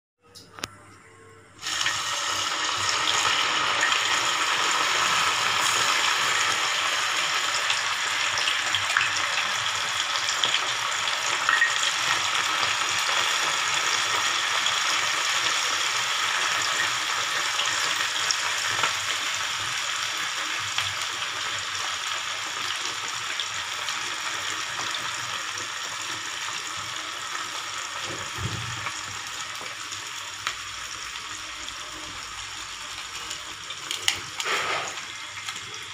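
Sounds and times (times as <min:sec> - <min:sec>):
deep-frying sizzle: 0:01.6 - 0:35.9.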